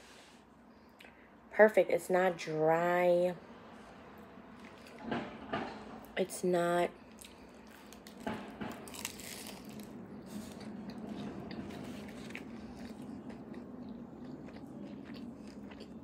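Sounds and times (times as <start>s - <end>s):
person biting and chewing: 7.1s - 16.0s.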